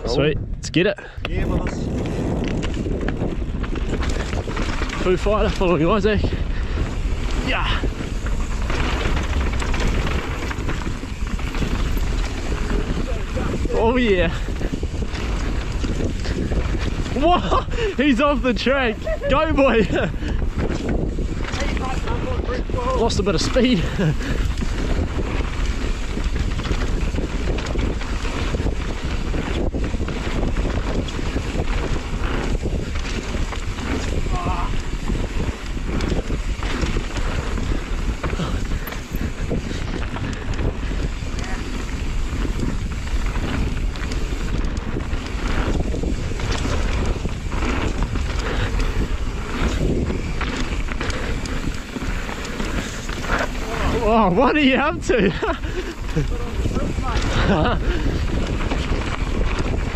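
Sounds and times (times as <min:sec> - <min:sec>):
bike rattling: 0:00.0 - 0:59.9
wind on microphone: 0:00.0 - 0:59.9
tyres rumbling on dirt: 0:01.3 - 0:59.9.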